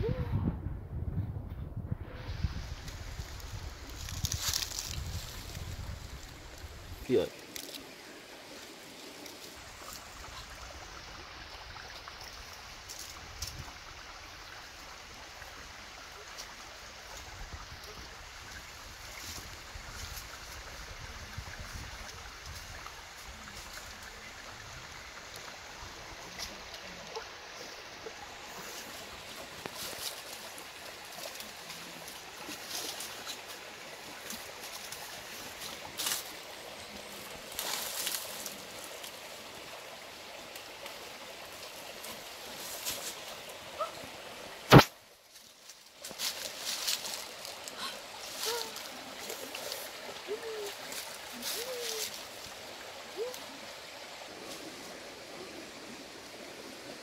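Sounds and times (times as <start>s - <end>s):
background hiss: 2.0s - 57.0s
leaves rustling and crackling: 2.0s - 57.0s
loud sharp click: 44.7s - 44.9s.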